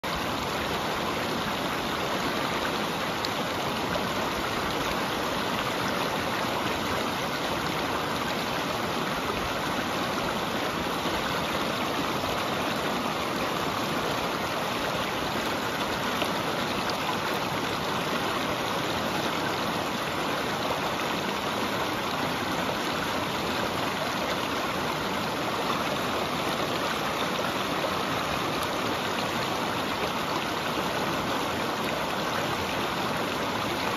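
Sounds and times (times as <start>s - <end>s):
stream rushing over stones: 0.0s - 33.9s.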